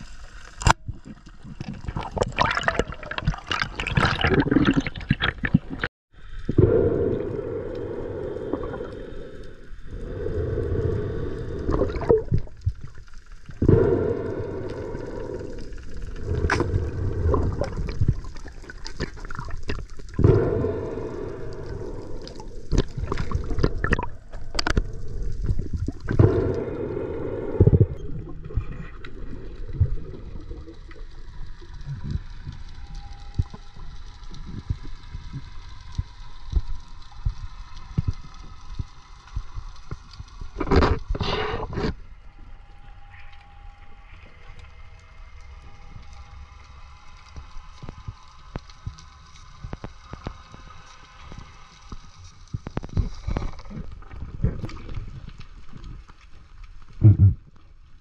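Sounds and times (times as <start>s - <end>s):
water splashing and sloshing: 0.0s - 5.9s, 7.3s - 42.2s
muffled underwater rushing: 0.0s - 32.7s.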